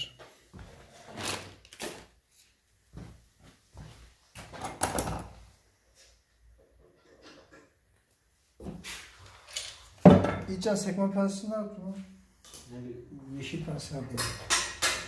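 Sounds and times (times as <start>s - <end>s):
tools clattering: 14.1s - 15.0s.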